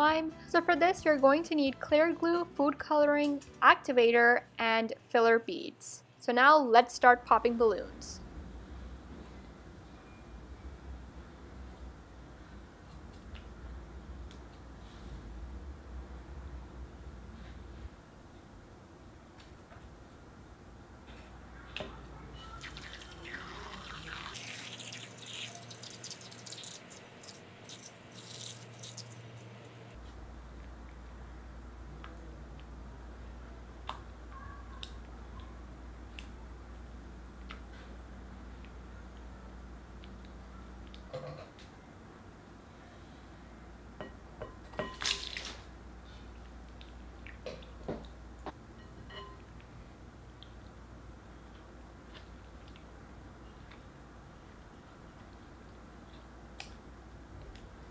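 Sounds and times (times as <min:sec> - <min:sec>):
drips and clicks: 0:22.5 - 0:29.3
liquid squirting into glass bowl: 0:22.6 - 0:29.3.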